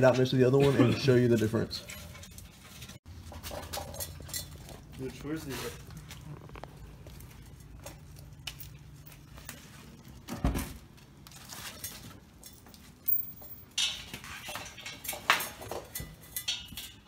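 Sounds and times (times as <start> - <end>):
metal clinks and knocks: 11.7 - 17.0.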